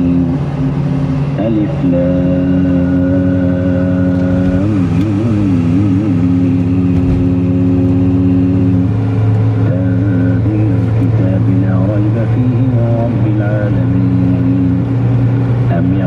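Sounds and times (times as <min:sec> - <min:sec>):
car cruising hum: 0:00.0 - 0:16.0
person chanting melodic notes: 0:01.4 - 0:08.9.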